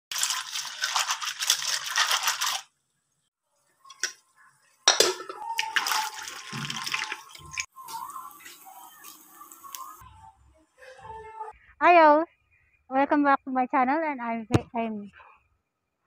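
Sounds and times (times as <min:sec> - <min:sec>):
water sloshing: 0:05.6 - 0:07.7.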